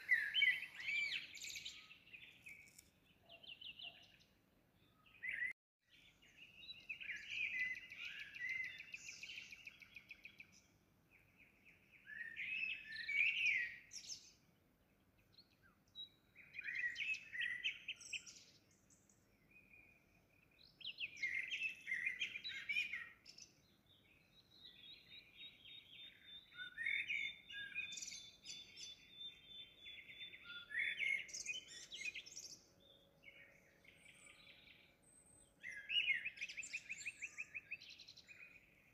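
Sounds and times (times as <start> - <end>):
bird trills and chirps: 0.0 - 4.2, 20.4 - 38.8.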